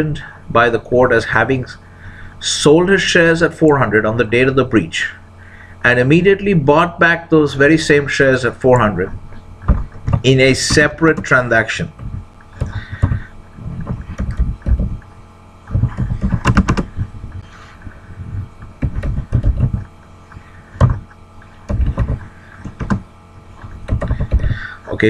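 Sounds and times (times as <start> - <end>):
typing on computer keyboard: 13.8 - 15.0, 15.7 - 17.0, 18.8 - 19.8, 21.7 - 23.0, 23.8 - 24.5.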